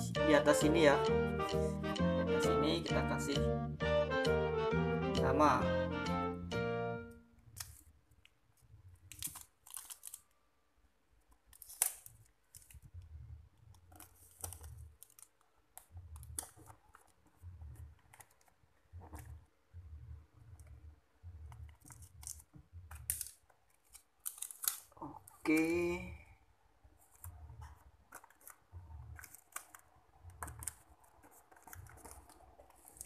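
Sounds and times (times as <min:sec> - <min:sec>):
packing tape crackling: 0:07.4 - 0:10.4, 0:11.2 - 0:19.4, 0:21.4 - 0:26.0, 0:27.0 - 0:33.0.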